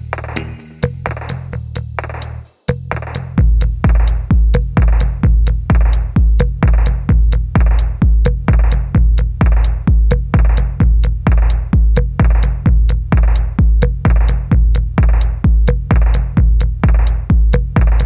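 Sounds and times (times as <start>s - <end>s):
electronic music: 0.0s - 1.4s
heavy kick drum beat: 0.0s - 18.0s
sharp hi-hat ticks: 0.0s - 18.0s.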